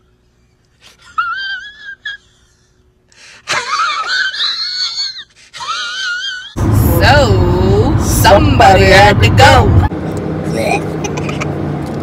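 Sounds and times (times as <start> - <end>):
man crying in squeaky wails: 1.0 - 2.4, 4.1 - 6.6.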